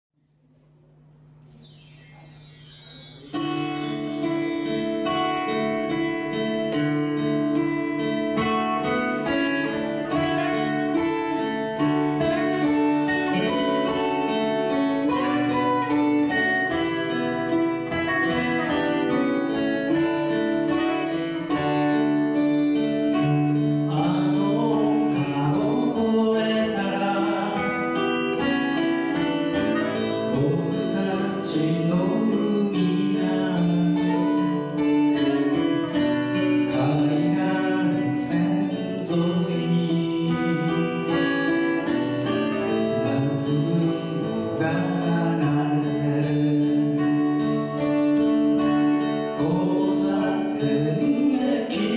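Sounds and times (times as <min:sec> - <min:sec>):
acoustic guitars playing: 0:01.4 - 0:51.9
person singing: 0:23.9 - 0:28.2, 0:29.8 - 0:35.9, 0:36.6 - 0:41.2.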